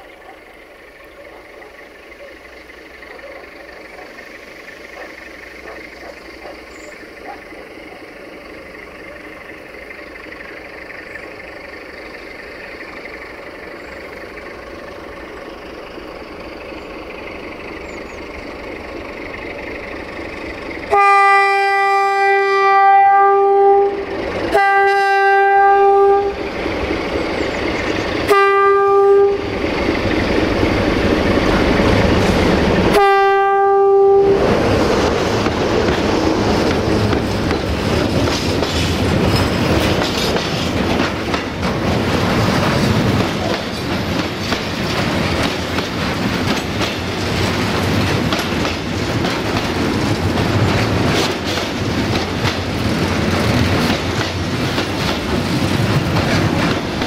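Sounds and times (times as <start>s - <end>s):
train wheel clatter on rails: 0.0s - 22.8s, 34.4s - 57.0s
locomotive horn blasts: 20.9s - 26.4s, 28.2s - 29.5s, 32.8s - 34.6s.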